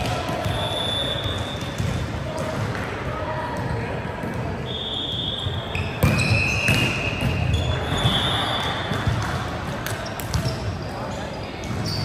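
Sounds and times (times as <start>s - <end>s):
sneakers squeaking on court: 5.1s - 12.0s.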